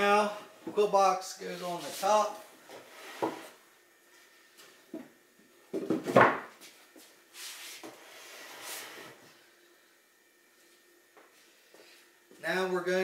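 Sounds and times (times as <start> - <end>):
wood scraping against wood: 2.7 - 3.6.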